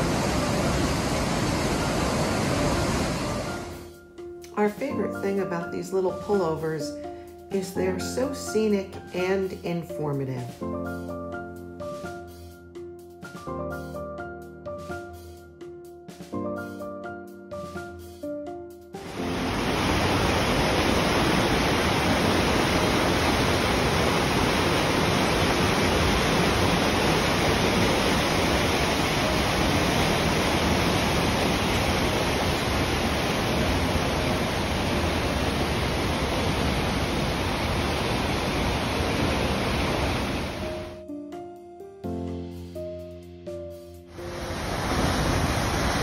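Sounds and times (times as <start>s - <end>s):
whitewater rushing: 0.0s - 3.8s, 19.0s - 40.9s, 44.2s - 46.0s.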